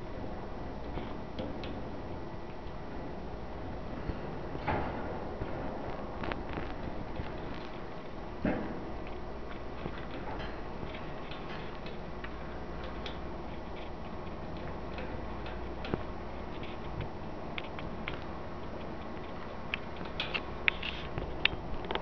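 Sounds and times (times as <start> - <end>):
steady background hiss: 0.0 - 22.0.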